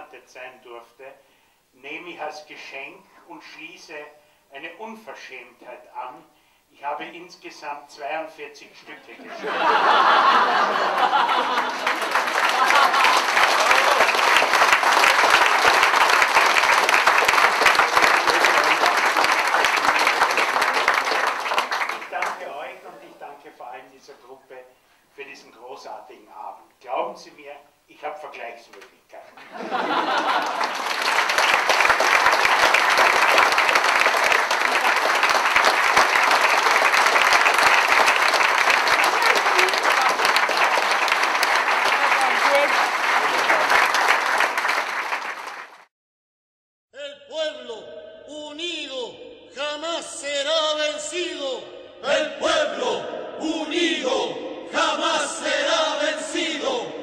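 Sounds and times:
audience applauding: 0:09.5 - 0:22.8, 0:29.6 - 0:45.9.

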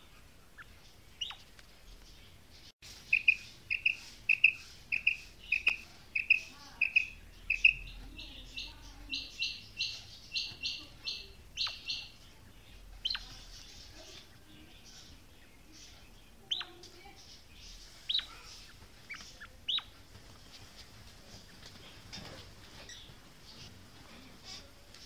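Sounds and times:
quail calling harsh notes: 0:02.9 - 0:12.2.

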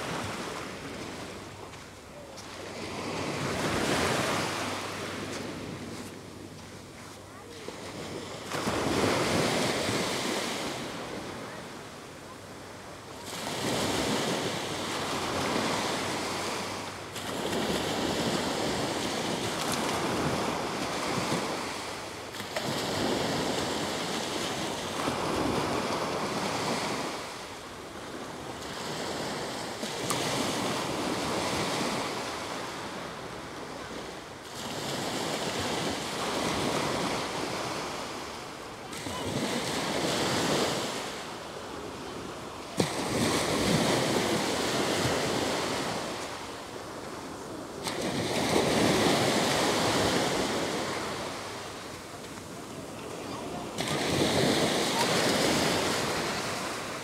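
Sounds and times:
waves breaking on a sandy beach: 0:00.0 - 0:57.0.

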